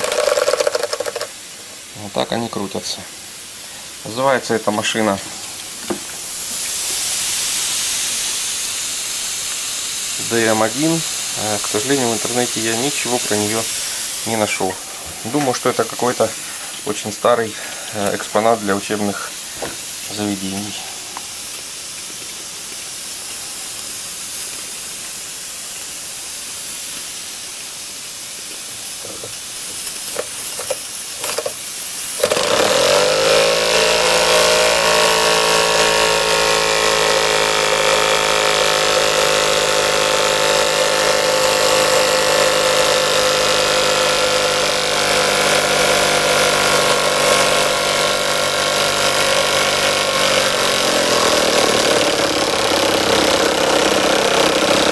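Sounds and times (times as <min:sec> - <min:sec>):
steam engine hissing: 0:00.0 - 0:54.9
steam engine running drone: 0:32.2 - 0:54.9.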